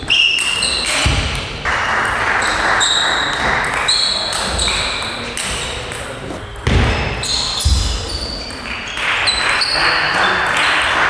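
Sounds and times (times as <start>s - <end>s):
table tennis ball hits: 0.0s - 9.7s.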